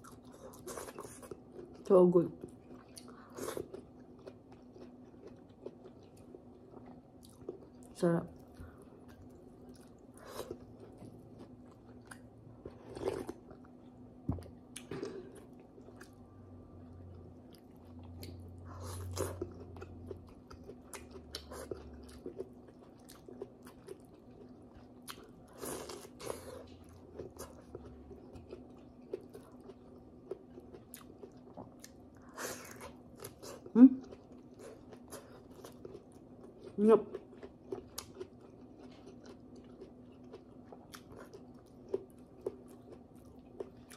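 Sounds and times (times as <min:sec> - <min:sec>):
faint steady hum: 0:00.0 - 0:43.9.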